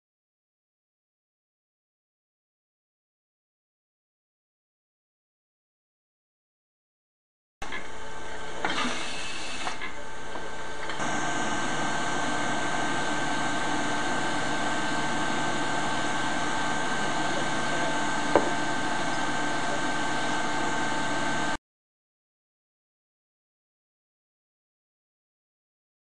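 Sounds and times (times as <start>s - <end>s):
machinery hum and hiss: 7.6s - 21.6s
knocks: 18.3s - 18.6s.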